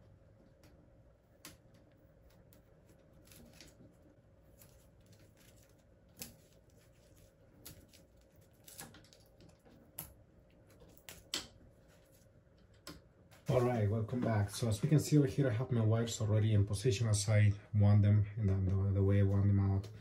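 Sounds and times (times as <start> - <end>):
cables clicking and rustling: 0.0 - 14.4.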